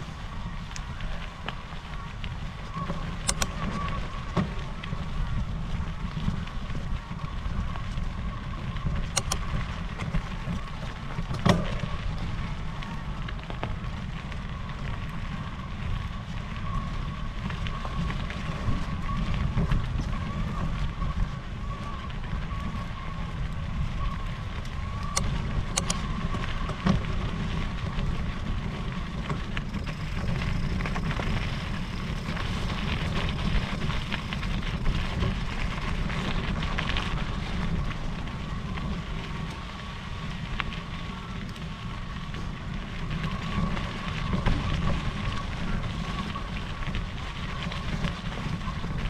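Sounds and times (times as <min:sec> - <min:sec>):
thin steady whine: 0:00.0 - 0:49.0
tyres crackling over gravel: 0:00.0 - 0:49.0
wind rumbling on microphone: 0:00.0 - 0:49.0
sharp clicks: 0:03.3 - 0:03.6, 0:09.2 - 0:09.4, 0:25.1 - 0:26.0.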